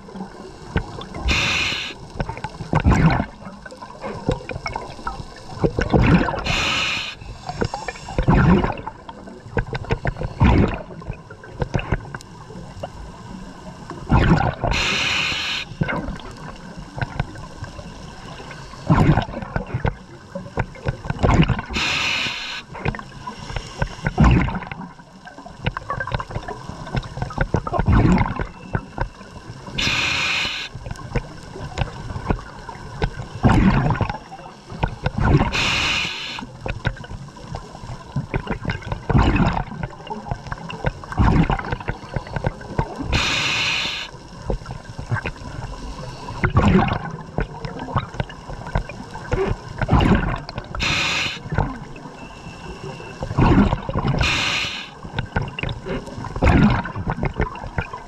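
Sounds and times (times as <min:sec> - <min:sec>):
gurgling bubbles: 0:00.0 - 0:58.0
diver breathing through regulator: 0:01.2 - 0:02.0, 0:06.4 - 0:08.6, 0:14.7 - 0:15.8, 0:21.7 - 0:24.5, 0:29.8 - 0:30.8, 0:35.4 - 0:36.5, 0:43.1 - 0:44.1, 0:50.8 - 0:51.5, 0:52.2 - 0:55.0.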